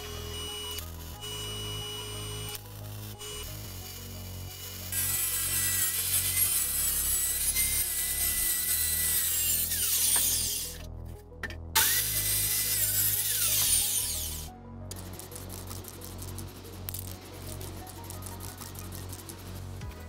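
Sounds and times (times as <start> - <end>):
circular saw cutting plywood: 0.0 - 10.9, 11.8 - 14.5.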